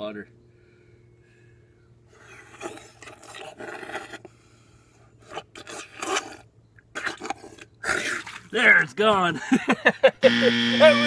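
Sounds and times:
man lapping and slurping water: 2.2 - 8.7.

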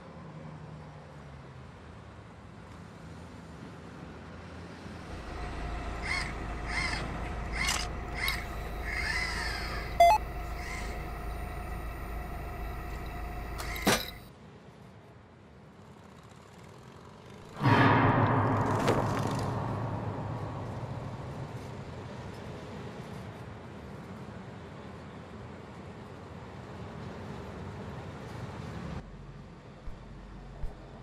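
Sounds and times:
low electrical hum: 5.0 - 14.3
loud hit: 5.1 - 14.2, 17.6 - 22.4
short squeaky calls: 5.5 - 11.6
sharp beep: 9.7 - 11.0.

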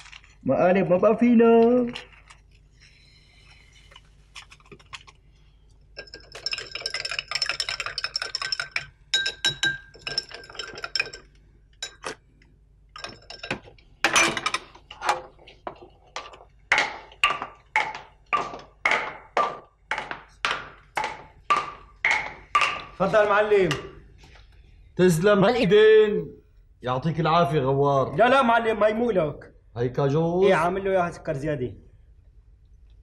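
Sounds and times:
metal spoon clinking in glass: 6.0 - 12.2, 13.0 - 14.6.

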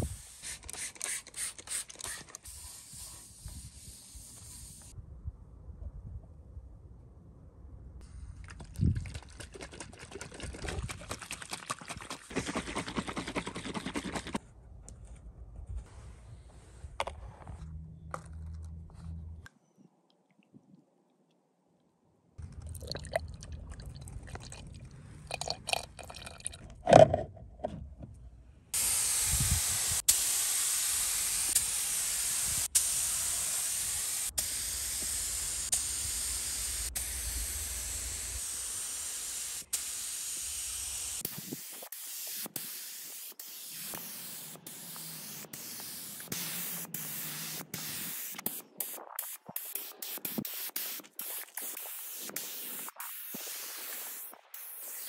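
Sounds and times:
spray gun hissing: 0.0 - 1.8, 2.4 - 5.0, 28.8 - 55.0.

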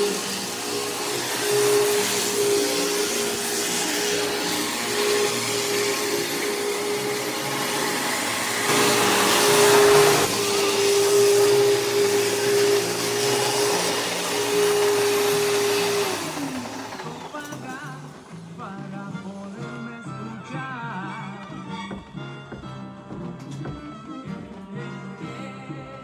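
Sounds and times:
vacuum cleaner running: 0.0 - 18.5.

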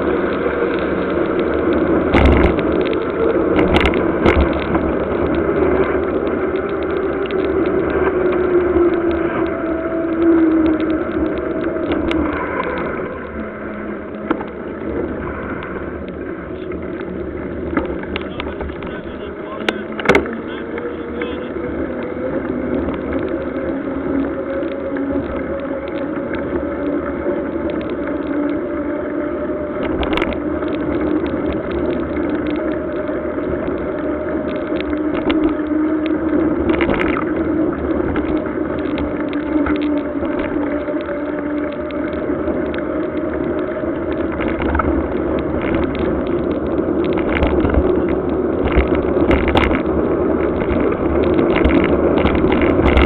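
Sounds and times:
bike tyres humming on asphalt: 0.0 - 53.0
sharp clicks and knocks: 0.8 - 9.6, 14.1 - 15.0, 16.9 - 22.0, 44.1 - 53.0
road noise hiss: 12.2 - 53.0.

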